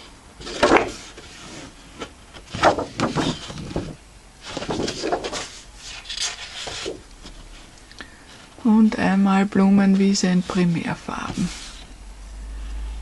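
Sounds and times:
stiff paper rustling and sliding: 0:00.4 - 0:07.7, 0:09.9 - 0:11.9.

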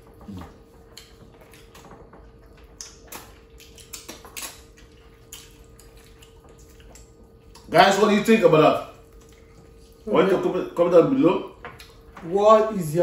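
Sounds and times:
faint steady hum: 0:00.0 - 0:13.0
chewing clicks and smacks: 0:00.2 - 0:07.8, 0:09.0 - 0:10.0, 0:11.7 - 0:12.1.

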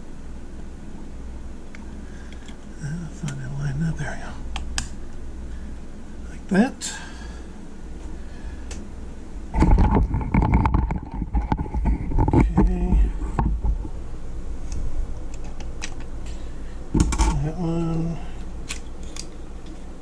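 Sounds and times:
camera handling rumble and clicks: 0:09.6 - 0:13.9, 0:14.7 - 0:16.2, 0:17.0 - 0:17.4, 0:18.6 - 0:19.9.

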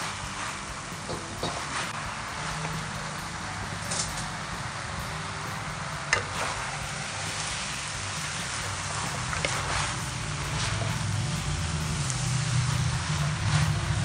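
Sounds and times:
food sizzling in a wok: 0:00.0 - 0:14.0
low steady hum: 0:00.0 - 0:14.0
spatula knocking and scraping pan: 0:01.0 - 0:03.0.

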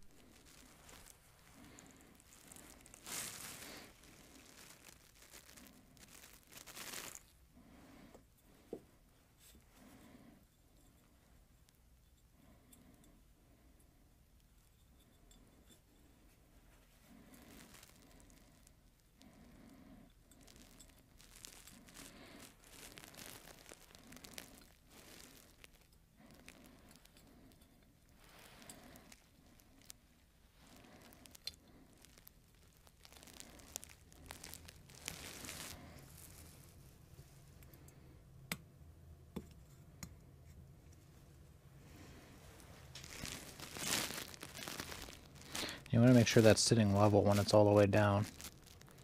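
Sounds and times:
paper towel rustling and crinkling: 0:00.0 - 0:07.3, 0:16.8 - 0:18.6, 0:20.4 - 0:27.1, 0:28.2 - 0:37.6, 0:41.8 - 0:49.0.

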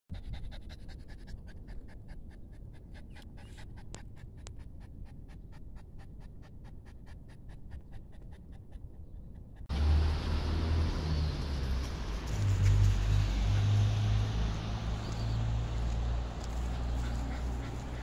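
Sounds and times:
dog panting fast: 0:00.1 - 0:09.7, 0:16.4 - 0:18.0.

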